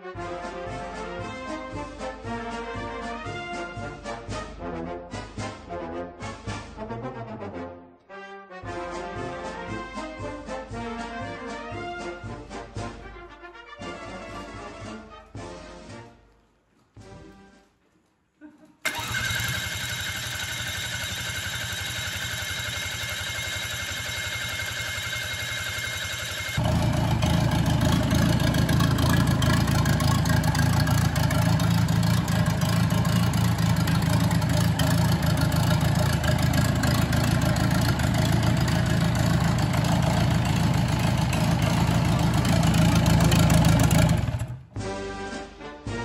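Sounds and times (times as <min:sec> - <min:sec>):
diesel engine idling: 0:18.9 - 0:44.6.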